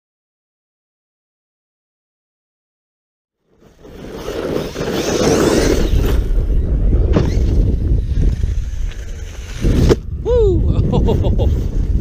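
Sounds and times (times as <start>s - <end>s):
rc truck driving over dirt: 3.4s - 10.2s
wind on microphone: 3.8s - 12.0s.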